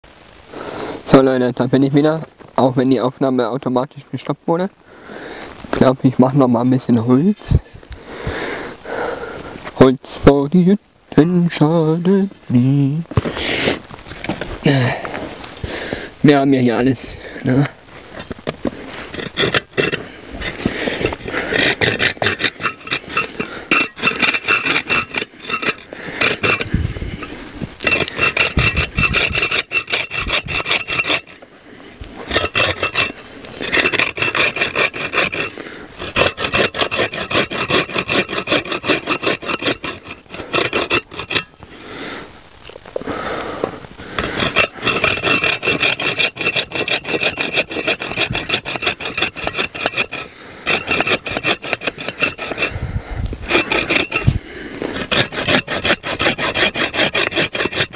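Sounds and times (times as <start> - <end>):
hand saw cutting wood: 18.9 - 31.4, 32.2 - 41.5, 44.1 - 52.8, 53.4 - 57.9.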